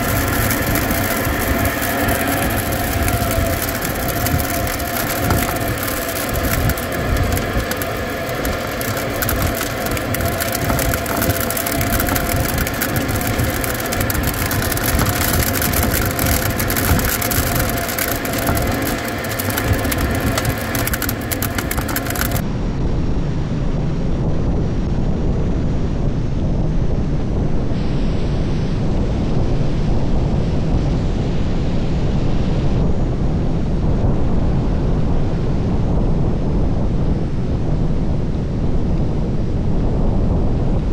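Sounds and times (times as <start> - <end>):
ice grains crackling on canopy: 0.0 - 22.4
air rushing over canopy: 0.0 - 40.9
wind buffeting camera: 0.0 - 40.9.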